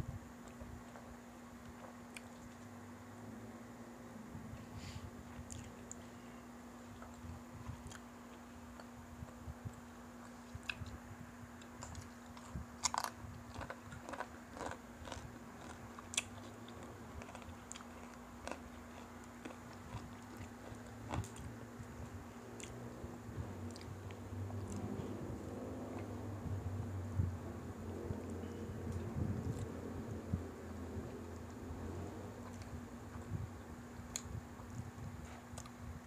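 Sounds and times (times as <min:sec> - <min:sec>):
low hum: 0:00.0 - 0:36.0
crunching fried chicken: 0:11.6 - 0:21.5.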